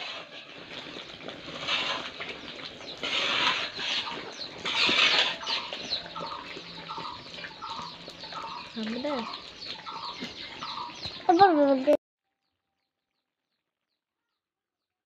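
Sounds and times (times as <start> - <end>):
ladle scraping metal pan: 0.0 - 11.0
hens clucking: 0.0 - 11.3.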